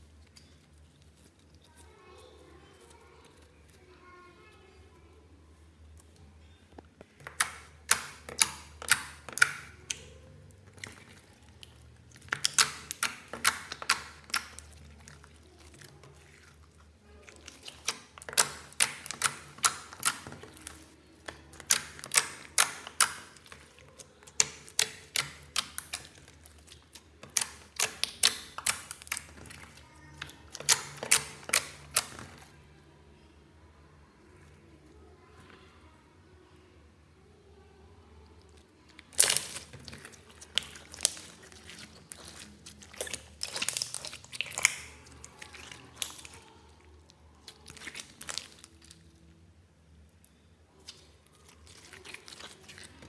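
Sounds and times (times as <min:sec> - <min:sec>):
slime wet clicks and pops: 0:07.2 - 0:10.1, 0:39.1 - 0:39.6, 0:43.0 - 0:44.9.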